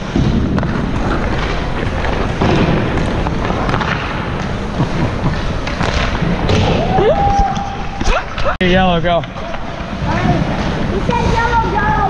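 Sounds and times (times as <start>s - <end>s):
hockey stick hitting puck: 0.0s - 7.6s
skate blades scraping ice: 0.0s - 8.5s.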